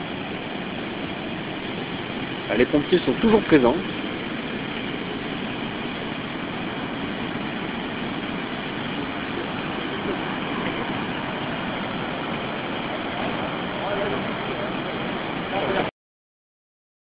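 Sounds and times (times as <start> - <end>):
river rushing: 0.0 - 15.9.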